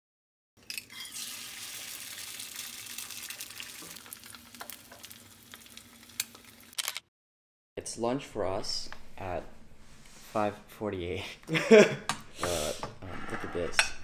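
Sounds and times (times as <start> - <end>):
egg sizzling in pan: 0.6 - 6.8.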